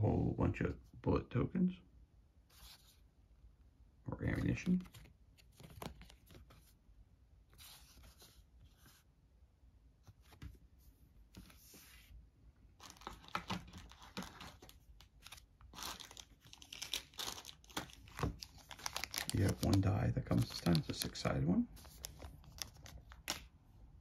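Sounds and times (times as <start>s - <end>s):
paper and cardboard rustling: 4.3s - 6.8s, 7.5s - 9.1s, 12.8s - 23.5s.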